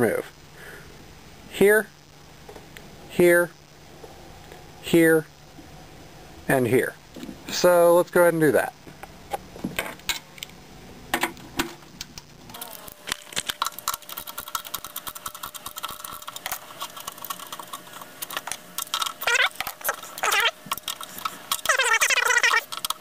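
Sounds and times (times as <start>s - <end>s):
screwdriver scraping in screw: 13.4s - 23.0s.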